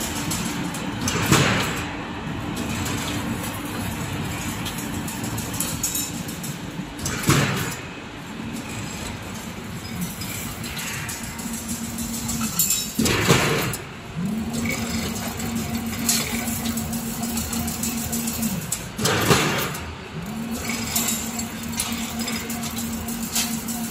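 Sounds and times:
machine clatter: 0.0s - 23.9s.

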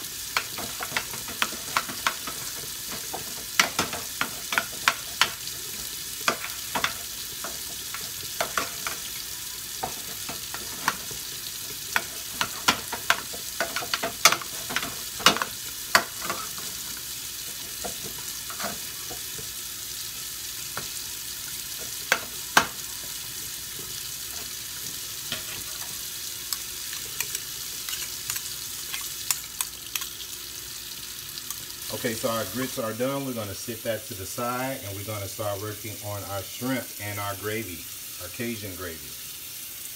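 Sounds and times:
metal spoon scraping a pan: 11.9s - 19.4s.

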